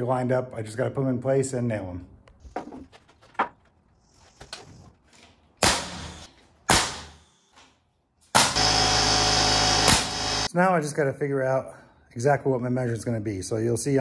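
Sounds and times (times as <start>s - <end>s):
nail gun firing: 5.6s - 7.3s, 8.3s - 10.5s
air compressor motor drone: 8.4s - 10.5s.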